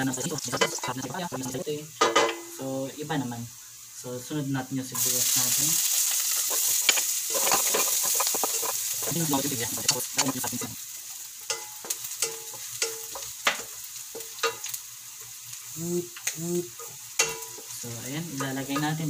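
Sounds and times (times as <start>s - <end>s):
garlic and onion sizzling in oil: 0.0s - 19.0s
wooden spatula scraping a wok: 5.0s - 10.7s.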